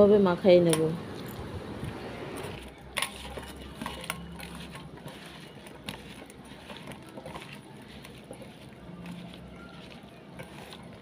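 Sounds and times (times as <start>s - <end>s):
hand squishing food in a bowl: 2.4s - 11.0s.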